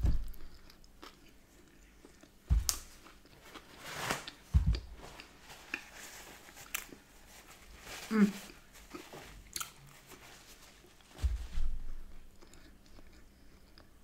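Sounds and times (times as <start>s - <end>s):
low thumps: 0.0s - 0.5s, 2.5s - 2.8s, 4.5s - 5.0s
chewing food: 0.2s - 3.7s, 12.3s - 14.0s.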